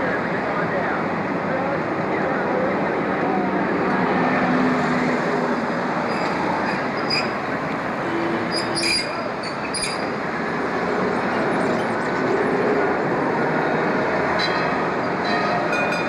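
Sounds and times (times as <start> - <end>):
streetcar wheels rumbling: 0.0 - 16.0
wheel squeals: 6.0 - 10.1.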